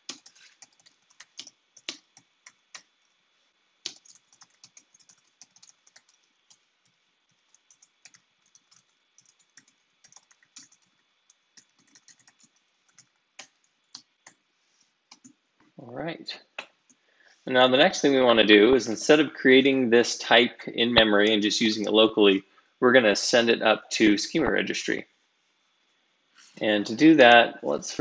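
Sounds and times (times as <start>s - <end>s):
typing on computer keyboard: 0.0s - 2.9s, 3.8s - 14.4s.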